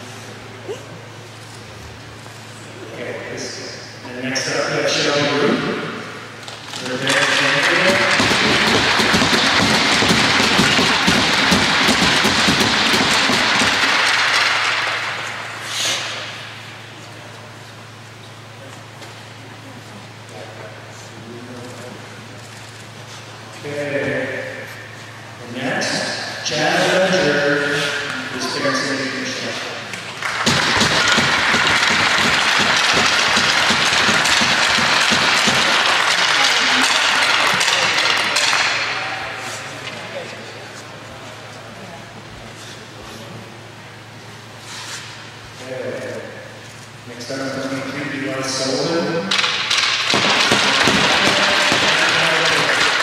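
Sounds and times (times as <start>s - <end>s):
crowd applauding: 6.9s - 15.4s, 29.9s - 38.6s, 50.1s - 53.0s.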